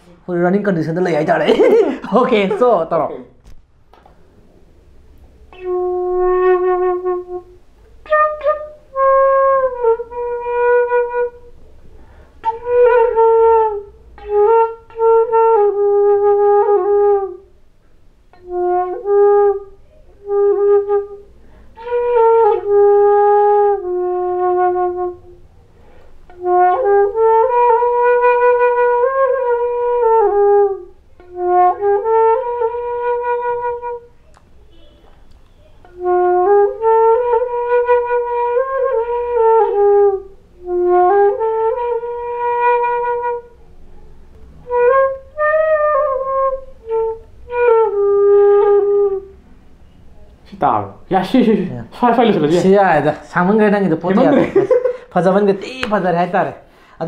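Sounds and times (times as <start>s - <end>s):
flute playing slow melody: 5.5s - 11.7s, 12.4s - 17.6s, 18.3s - 25.6s, 26.3s - 50.3s.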